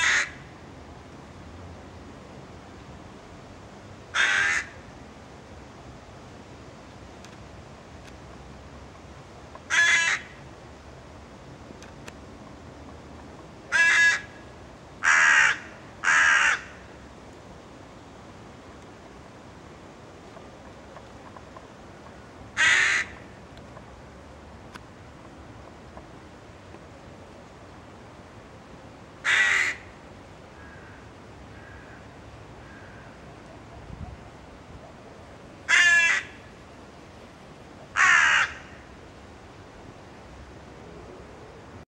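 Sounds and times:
crow cawing: 0.0 - 0.4, 4.1 - 4.8, 9.7 - 10.4, 13.7 - 14.4, 15.0 - 16.8, 22.6 - 23.2, 29.2 - 29.9, 30.6 - 33.2, 35.7 - 36.4, 37.9 - 38.8.

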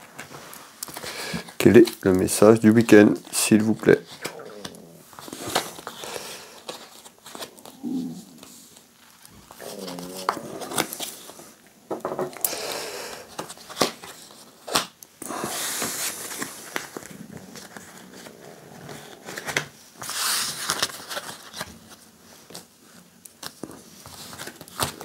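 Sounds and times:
cards sliding across mat: 12.4 - 21.6.

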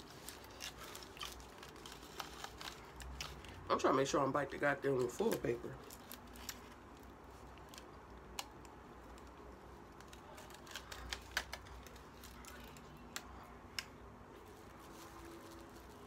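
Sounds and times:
person chewing food: 0.0 - 3.7
foil wrapper crinkling: 0.0 - 13.3, 14.4 - 16.0.

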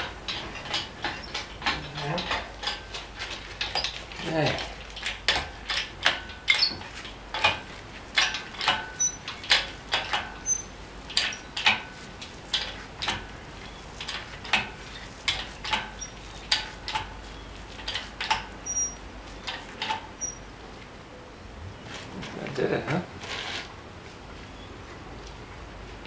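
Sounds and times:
sharp metallic clicks and knocks: 0.0 - 20.4.

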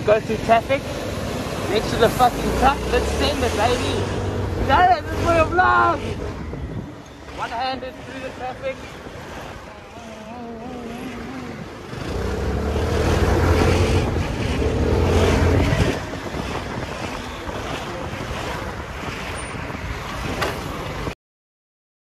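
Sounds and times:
wind noise on microphone: 2.2 - 7.9, 10.7 - 21.2.

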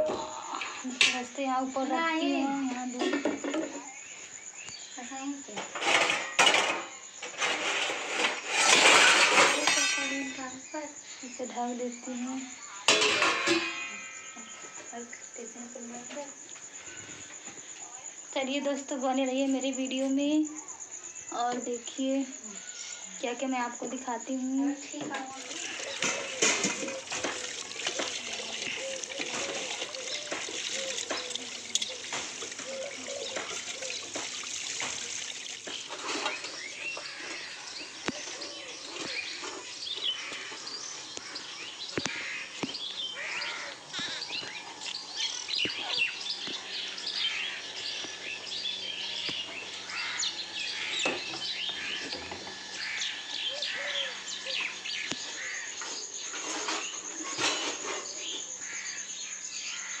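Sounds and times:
steel utensils clinking: 8.5 - 10.4, 12.9 - 14.2, 25.4 - 36.8
birds chirping: 19.2 - 60.0.

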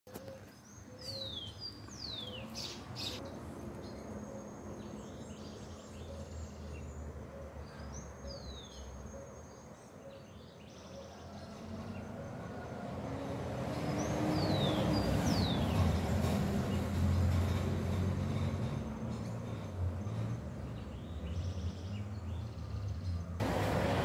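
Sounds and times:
birds whistling: 0.1 - 3.3.

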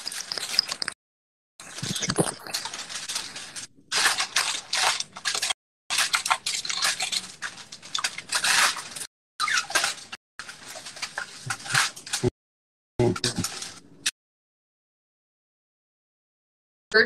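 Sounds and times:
aluminum foil crinkling: 0.0 - 1.0, 1.6 - 12.3, 13.2 - 13.8.

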